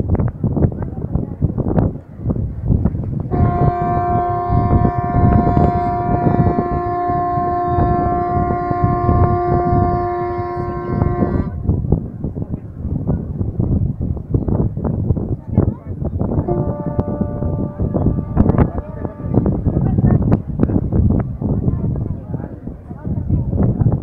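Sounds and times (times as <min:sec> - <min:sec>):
wind buffeting microphone: 0:00.0 - 0:24.0
ship's horn long blast: 0:03.3 - 0:11.8, 0:16.4 - 0:20.1.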